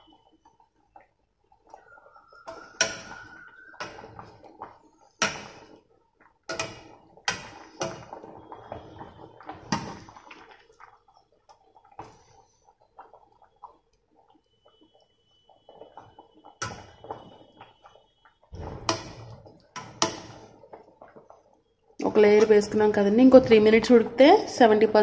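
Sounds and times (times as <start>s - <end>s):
boiling water: 0.0s - 25.0s
metal ladle knocking on pot: 18.6s - 20.4s.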